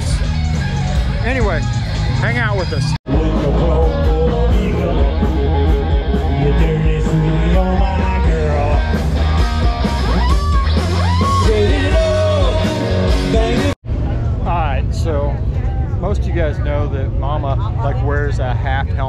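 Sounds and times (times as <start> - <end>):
rock band through speakers: 0.0 - 13.8
person singing: 3.1 - 9.1, 11.0 - 13.8.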